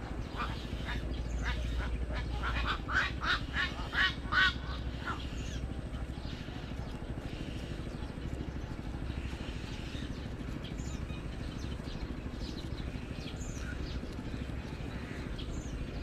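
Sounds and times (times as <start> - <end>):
chicks harsh calls: 0.0 - 11.5
steady low rumble: 0.0 - 16.0.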